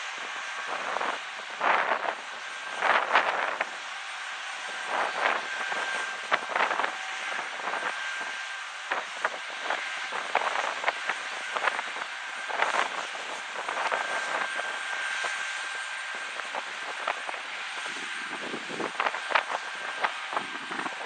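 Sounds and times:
jet engines whining: 0.0s - 21.0s
wind buffeting microphone: 4.8s - 21.0s.

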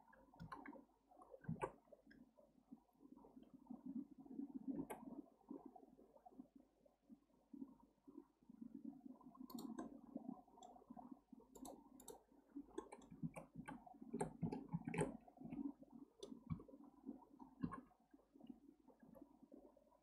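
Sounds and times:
keyboard and mouse clicking: 0.4s - 0.8s, 1.4s - 1.8s, 9.5s - 10.0s, 11.5s - 15.6s, 16.2s - 16.7s, 17.6s - 17.8s.

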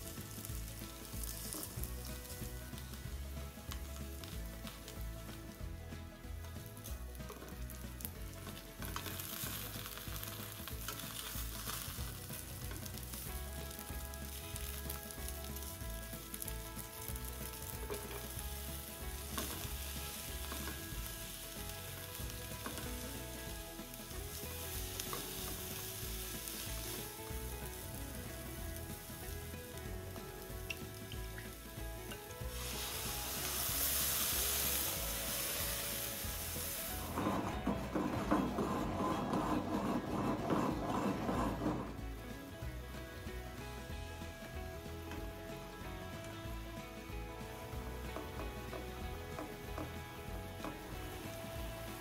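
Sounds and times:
food sizzling in oil: 0.0s - 52.0s.

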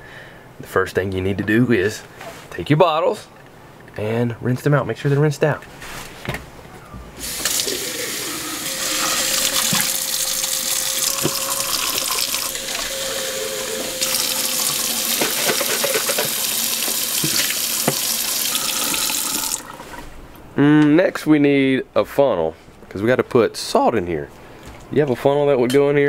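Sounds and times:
faucet running into bottles: 7.2s - 20.0s.

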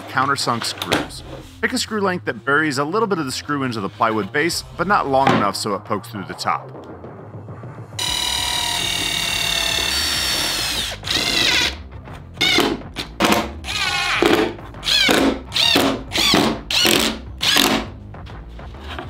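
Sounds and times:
cordless drill drilling into wood: 8.0s - 11.8s, 13.7s - 17.8s.

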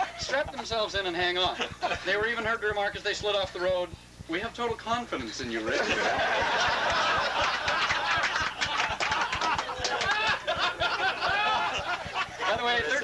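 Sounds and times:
crowd laughing: 5.6s - 13.0s.

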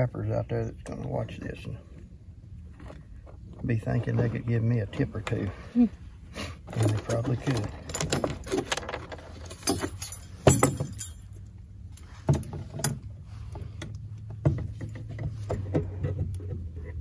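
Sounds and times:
metal clanks: 6.7s - 13.2s
metal trap chain clinking: 6.8s - 13.1s.

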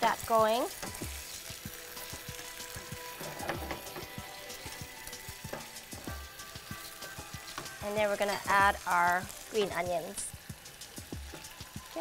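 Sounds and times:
food sizzling in a frying pan: 0.0s - 12.0s
spatula scraping a pan: 0.7s - 9.8s.

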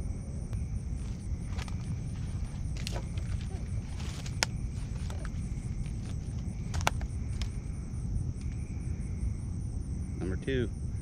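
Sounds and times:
low rumble: 0.0s - 11.0s
night insects chirping: 0.0s - 11.0s
clicks and knocks of handling fish: 2.8s - 7.6s.

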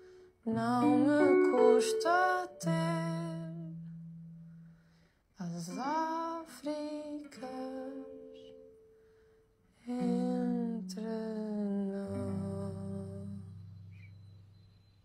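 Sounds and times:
person humming a melody: 0.0s - 4.1s, 5.4s - 8.7s, 9.8s - 14.0s.

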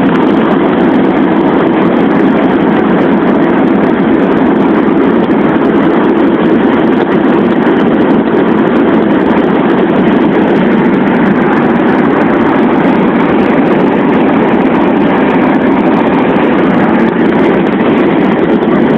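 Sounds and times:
road noise inside a car: 0.0s - 18.9s.

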